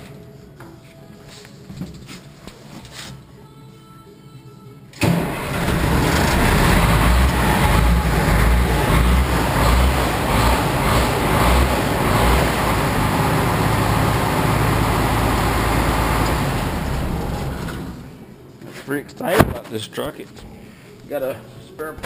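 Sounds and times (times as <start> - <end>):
truck engine surging and idling: 5.0 - 18.2.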